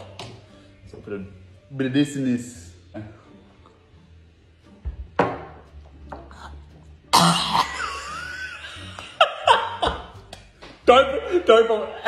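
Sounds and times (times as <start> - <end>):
people coughing: 7.1 - 8.2.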